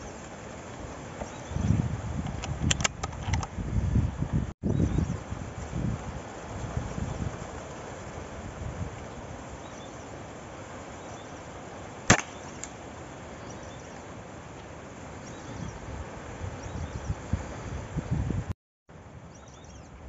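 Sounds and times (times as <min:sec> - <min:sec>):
rifle shot: 0:12.1 - 0:12.7.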